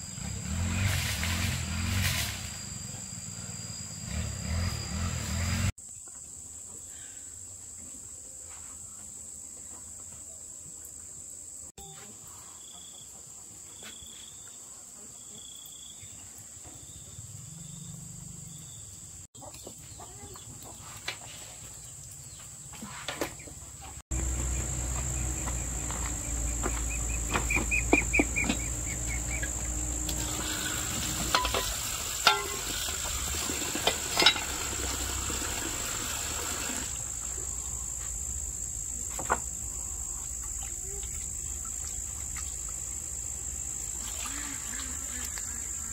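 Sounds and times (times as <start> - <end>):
insects droning: 0.0 - 19.3, 23.6 - 45.9
hiss: 0.4 - 2.8, 30.0 - 38.4.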